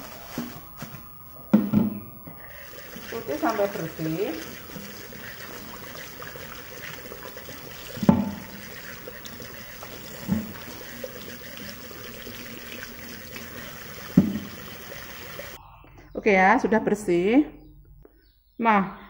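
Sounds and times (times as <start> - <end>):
tap water running in sink: 2.4 - 15.6.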